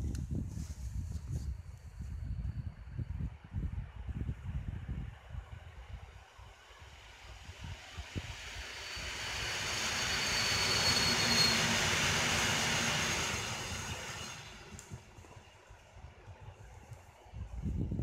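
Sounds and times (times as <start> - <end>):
electric train passing: 5.1 - 17.4
high whine: 6.0 - 17.6.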